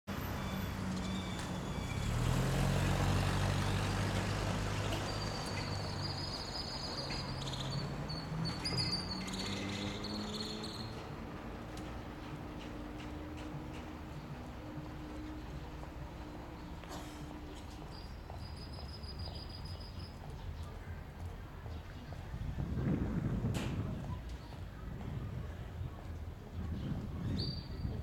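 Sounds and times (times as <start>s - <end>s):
vehicle engine running: 0.1s - 8.2s
birds chirping: 3.6s - 11.2s.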